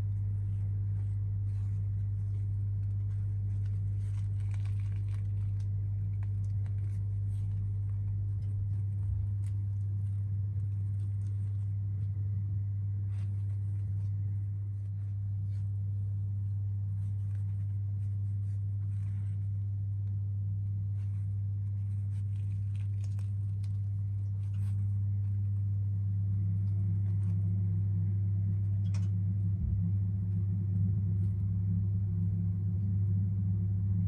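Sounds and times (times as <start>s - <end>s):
faint soft crackles: 0.0s - 34.0s
steady low hum: 0.0s - 34.0s.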